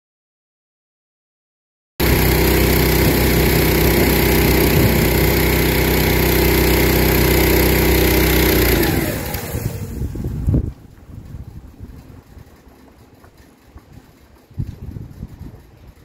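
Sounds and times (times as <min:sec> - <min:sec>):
pressure washer engine running: 0:02.0 - 0:10.5.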